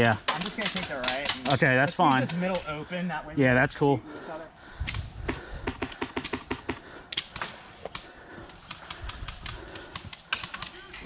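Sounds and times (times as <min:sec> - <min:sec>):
airsoft rifle shots: 0:05.7 - 0:08.1, 0:09.9 - 0:11.0.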